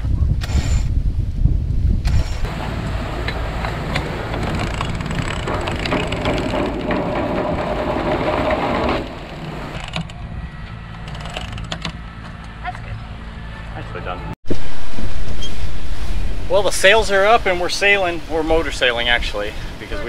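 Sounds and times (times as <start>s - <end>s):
winch ratcheting clicks: 3.2s - 10.2s.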